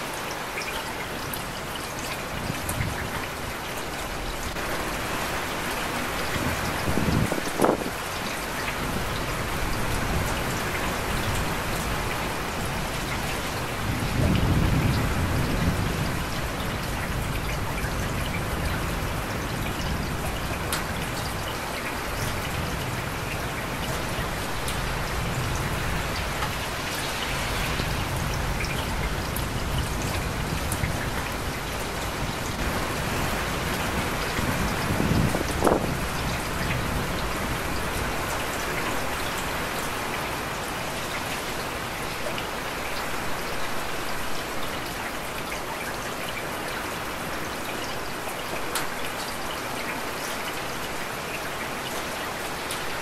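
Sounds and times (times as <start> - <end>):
heavy rain falling: 0.0 - 53.0
low thunder rumble: 13.8 - 21.2.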